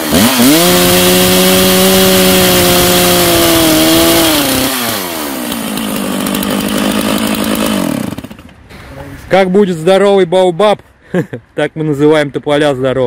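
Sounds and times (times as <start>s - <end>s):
chainsaw cutting through log: 0.0s - 8.6s.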